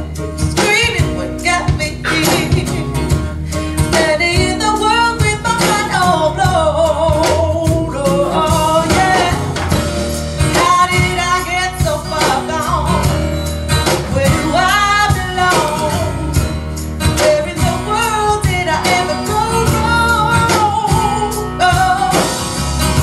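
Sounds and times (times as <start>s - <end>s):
song with singer and guitar: 0.0s - 23.0s.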